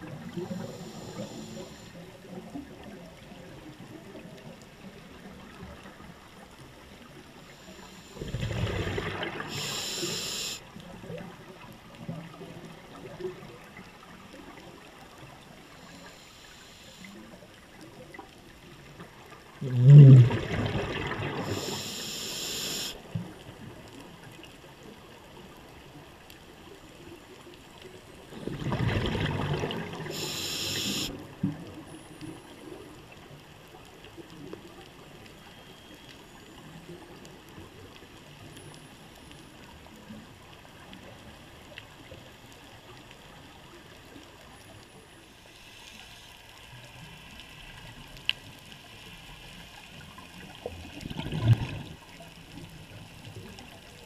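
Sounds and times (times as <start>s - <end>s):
low water noise: 0.0s - 54.0s
bubbling breath through regulator: 0.3s - 2.0s, 7.4s - 10.6s, 19.6s - 23.0s, 28.6s - 31.2s
regulator hiss: 0.4s - 2.0s, 7.5s - 8.2s, 9.4s - 10.6s, 15.8s - 17.3s, 21.4s - 23.0s, 30.0s - 31.1s.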